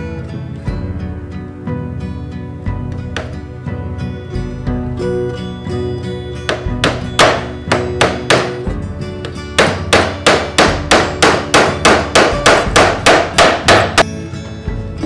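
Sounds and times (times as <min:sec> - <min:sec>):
hammer striking nails into wood: 0:06.5 - 0:14.0.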